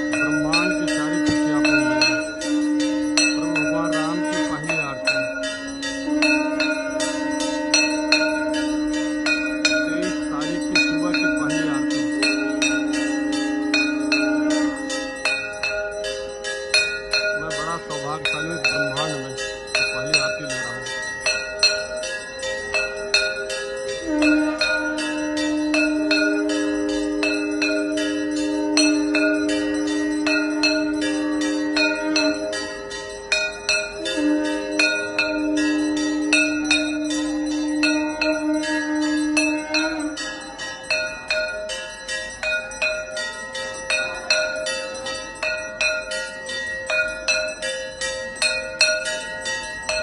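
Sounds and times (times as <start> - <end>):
temple bells ringing rapidly: 0.0 - 50.0
long steady low note: 0.1 - 5.3.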